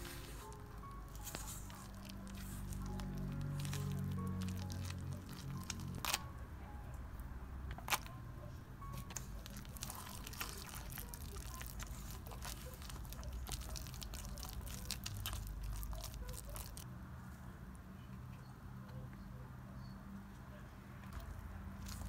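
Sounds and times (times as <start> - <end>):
batter squishing: 0.0 - 6.2, 8.9 - 16.8, 21.2 - 22.0.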